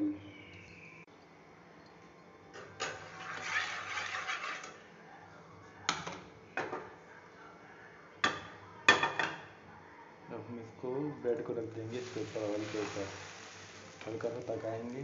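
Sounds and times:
pan scraping on grate: 2.6s - 4.8s, 12.0s - 14.4s.

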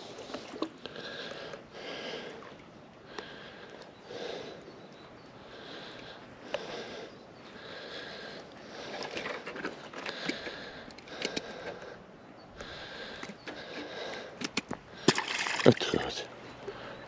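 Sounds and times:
nasal breathing with whistle: 16.4s - 17.0s.

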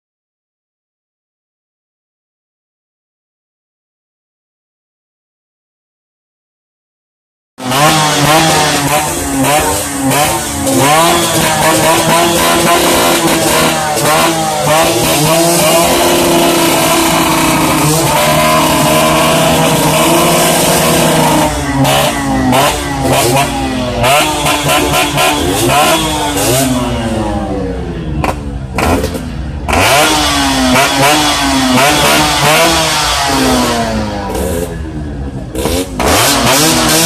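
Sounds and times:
motorcycle engine revving: 7.6s - 37.0s.

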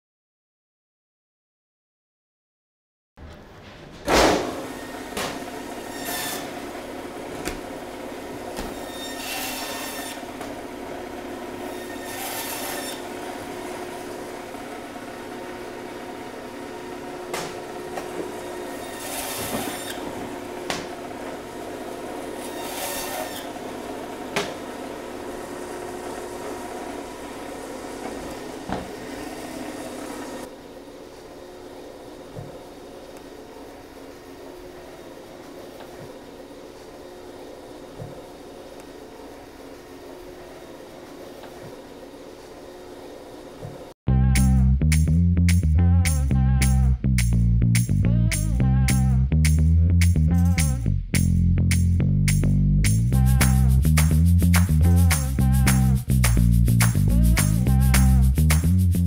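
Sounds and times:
bandsaw humming: 4.4s - 30.6s, 52.9s - 59.0s
blade rasping through bone: 11.8s - 13.1s, 22.4s - 23.6s.

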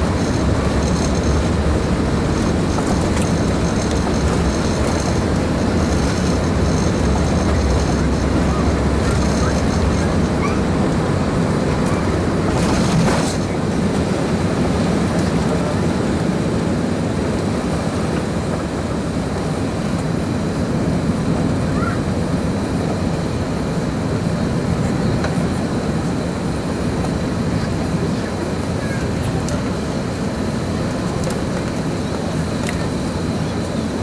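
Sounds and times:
jet engines at takeoff thrust: 0.0s - 34.0s
steady cabin rumble: 0.0s - 34.0s.

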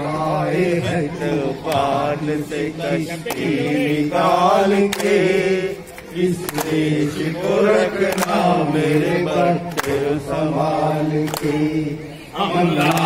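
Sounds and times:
hand claps: 3.2s - 3.6s, 4.7s - 7.0s, 8.0s - 10.2s, 11.2s - 11.7s, 12.8s - 13.0s.

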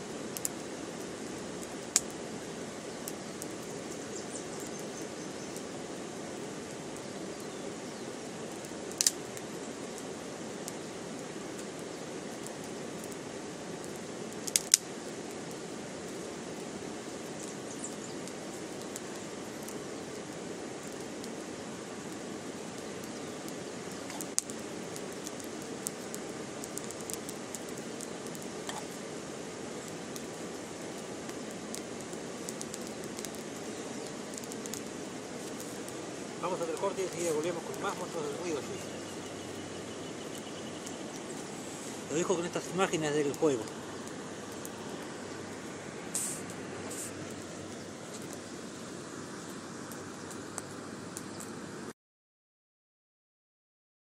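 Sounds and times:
campfire crackling: 0.0s - 51.9s
stick snapping: 14.5s - 14.8s.

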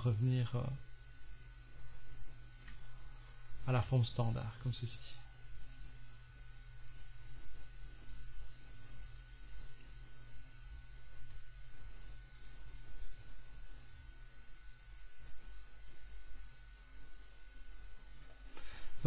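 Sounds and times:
low steady hum: 0.0s - 19.0s
computer mouse clicking: 2.6s - 3.4s, 6.8s - 8.5s, 9.1s - 9.5s, 11.2s - 13.5s, 14.4s - 16.9s, 17.5s - 18.4s.

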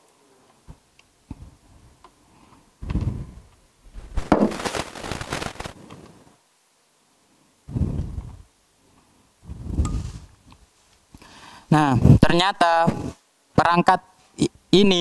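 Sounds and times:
crackling rustle of cables: 0.4s - 6.4s.

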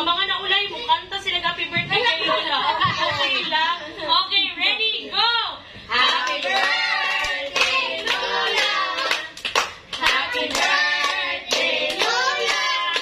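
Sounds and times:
women and children singing: 5.9s - 9.4s, 10.0s - 13.0s
hand clapping: 6.0s - 13.0s.

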